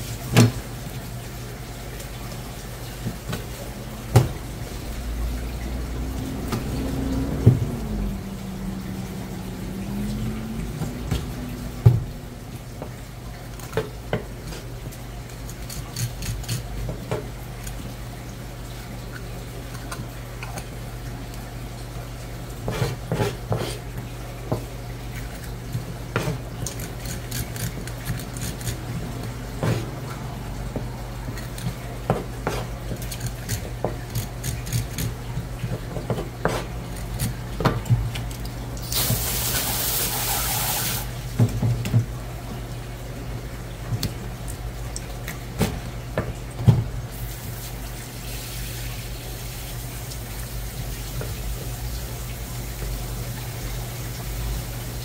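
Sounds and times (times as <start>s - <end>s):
knife knocking on cutting board: 10.8s - 12.2s
knife scraping fish: 13.6s - 17.9s, 22.6s - 24.0s, 25.2s - 30.0s, 31.2s - 38.3s.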